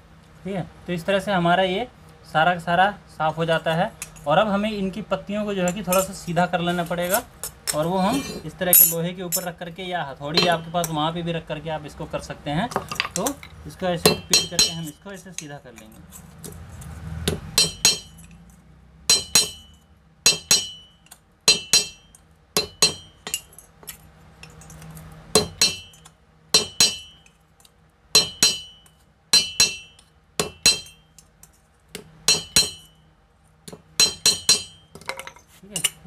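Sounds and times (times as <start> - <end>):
hammer striking sheet metal: 14.0 - 15.5, 17.2 - 18.3, 19.1 - 23.5, 25.4 - 26.0, 26.6 - 27.3, 28.2 - 31.1, 32.3 - 33.0, 34.0 - 35.0.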